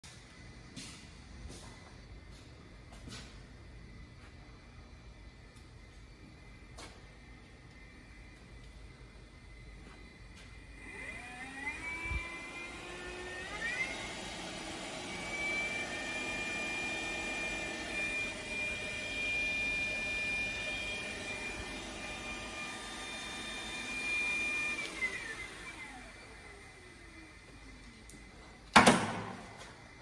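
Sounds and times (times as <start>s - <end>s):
milling machine spindle whine: 7.5s - 28.7s.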